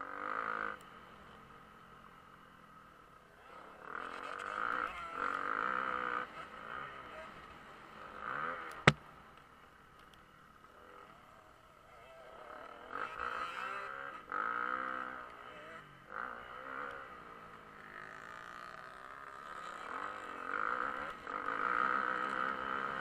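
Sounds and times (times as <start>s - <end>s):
dirt bike engine revving: 12.7s - 23.0s.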